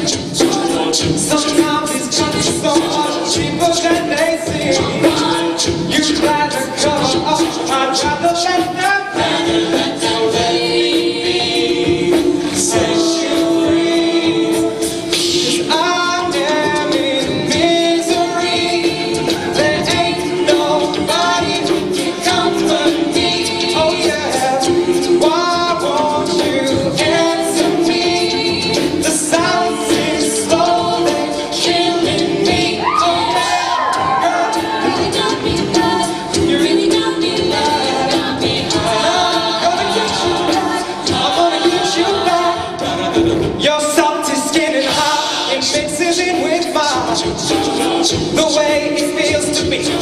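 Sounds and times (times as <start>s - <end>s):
man singing lead: 0.0s - 9.3s
backing vocals: 0.0s - 50.0s
vocal percussion beat: 0.0s - 50.0s.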